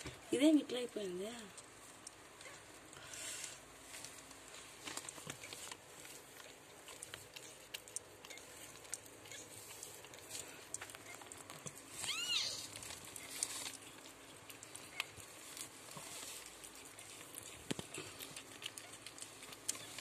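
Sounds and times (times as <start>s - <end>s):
cat licking with wet clicks: 5.1s - 11.9s, 13.0s - 20.0s
kitten mewing: 12.0s - 12.8s.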